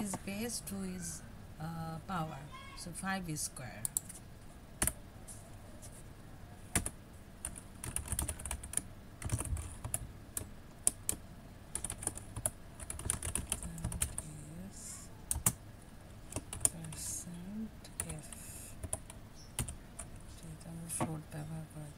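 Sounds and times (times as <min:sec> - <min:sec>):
computer keyboard typing: 0:06.7 - 0:14.3, 0:15.3 - 0:15.6, 0:16.3 - 0:17.1, 0:17.9 - 0:20.1.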